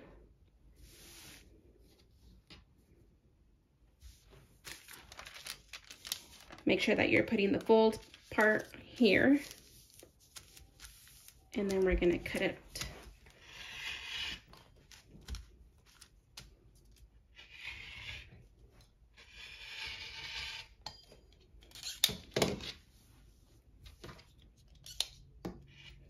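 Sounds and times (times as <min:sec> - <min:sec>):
rotary cutter scraping fabric: 0:13.4 - 0:14.6, 0:17.3 - 0:18.4, 0:19.1 - 0:20.8.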